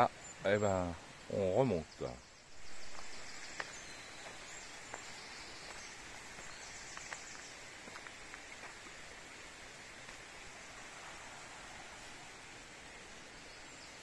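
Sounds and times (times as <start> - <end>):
faint bird chirps: 0.0 - 7.6
stream and waterfall rushing: 0.0 - 14.0
footsteps on dirt path: 2.5 - 9.2.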